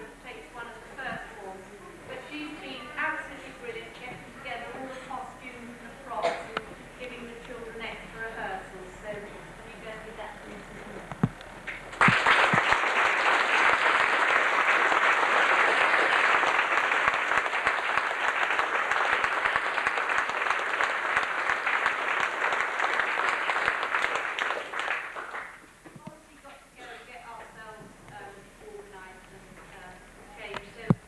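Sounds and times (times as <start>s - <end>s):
audience applauding: 11.6s - 25.7s.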